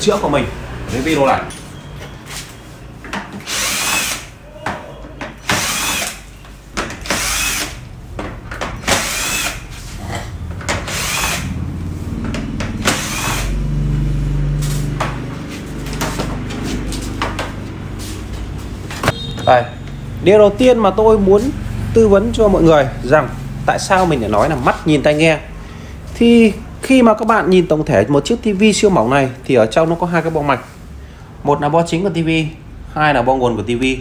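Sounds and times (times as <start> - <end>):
cordless screwdriver whirring: 3.4 - 4.3, 5.4 - 6.2, 7.0 - 7.8, 8.8 - 9.6, 10.9 - 11.5, 12.8 - 13.5.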